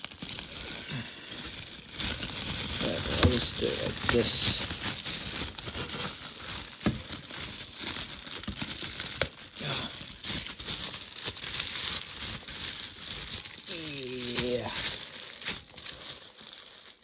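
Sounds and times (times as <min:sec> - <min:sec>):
packaging crinkling and rustling: 0:00.0 - 0:17.0.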